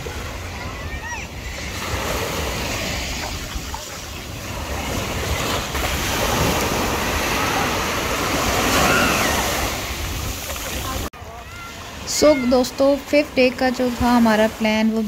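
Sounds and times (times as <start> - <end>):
wind buffeting microphone: 0.0 - 11.1
small waves breaking on beach: 0.0 - 15.0.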